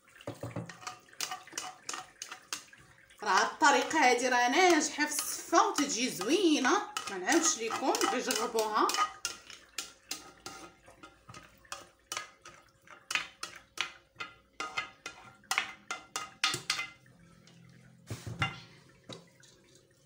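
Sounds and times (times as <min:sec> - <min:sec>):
utensil scraping and knocking dish: 0:00.3 - 0:02.7, 0:04.6 - 0:17.0.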